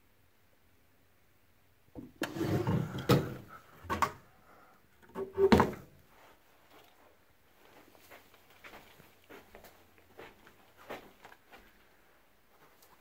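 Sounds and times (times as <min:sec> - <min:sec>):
wooden cabinet door shutting: 0:02.0 - 0:04.2, 0:05.3 - 0:05.9
wooden drawer sliding shut: 0:02.0 - 0:04.2.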